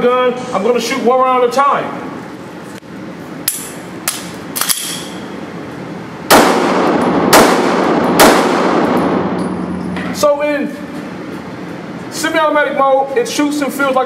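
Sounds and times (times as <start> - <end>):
pistol shots ringing indoors: 6.3 - 10.0.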